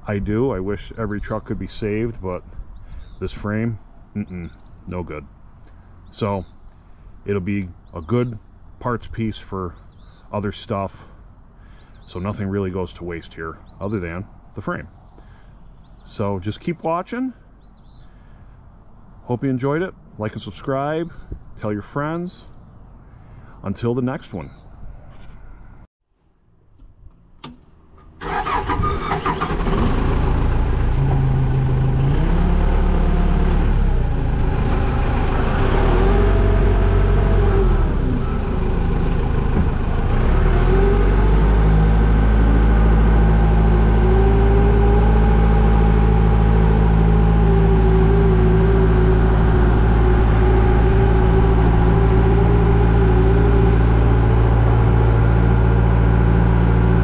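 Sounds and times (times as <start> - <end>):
forklift engine starting and idling: 27.4 - 57.0.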